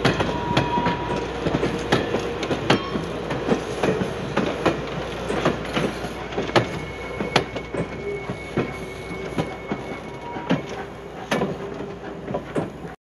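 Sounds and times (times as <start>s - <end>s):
train rumble: 0.0s - 13.0s
train wheels clacking on rail joints: 0.0s - 13.0s
wheel squeal: 6.2s - 12.0s.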